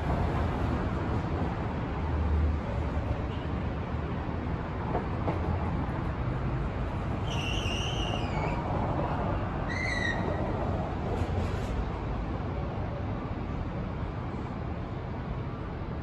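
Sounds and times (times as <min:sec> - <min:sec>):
traffic rumble: 0:00.0 - 0:16.0
high wavering whistle-like call: 0:07.3 - 0:08.6.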